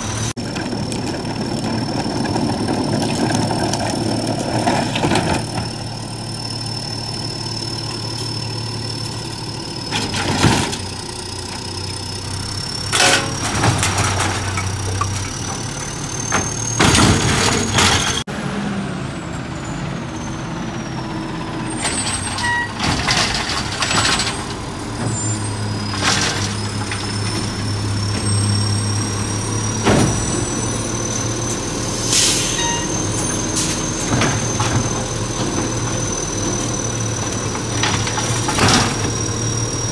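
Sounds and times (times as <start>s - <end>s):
carts banging and clanking: 0.0s - 6.2s, 7.8s - 11.2s, 12.8s - 18.3s, 21.7s - 39.9s
garbage truck engine whining: 0.0s - 39.9s
air brakes hissing: 27.1s - 37.2s.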